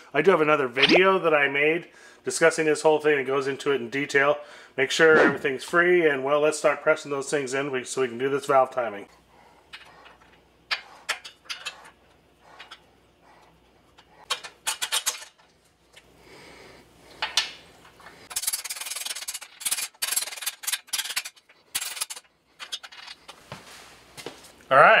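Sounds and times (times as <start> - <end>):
metal parts rubbing: 9.7 - 12.9, 13.9 - 15.5, 18.2 - 23.3
metal clicks and scrapes: 13.9 - 15.5, 18.3 - 23.4.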